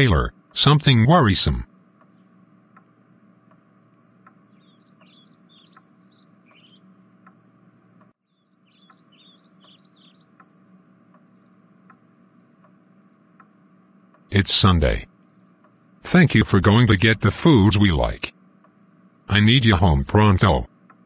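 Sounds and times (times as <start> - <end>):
low steady hum: 0.0 - 21.0
soft ticking: 0.1 - 21.0
small birds chirping: 1.7 - 17.0.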